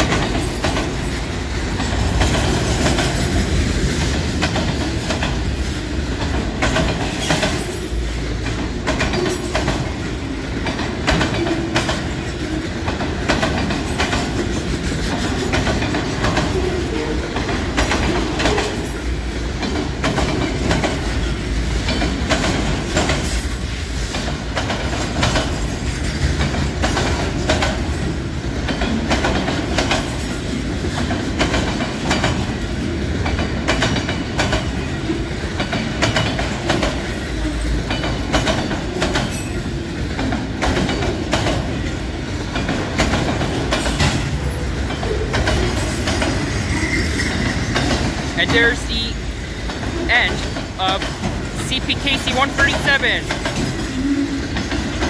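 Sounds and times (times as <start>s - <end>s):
train wheels rumbling on rail: 0.0s - 55.0s
wheels clacking over rail joints: 0.0s - 55.0s.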